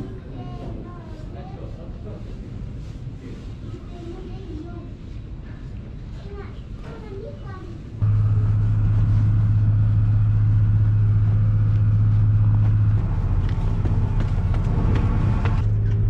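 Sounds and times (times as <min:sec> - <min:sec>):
ship engine droning: 0:08.0 - 0:16.0.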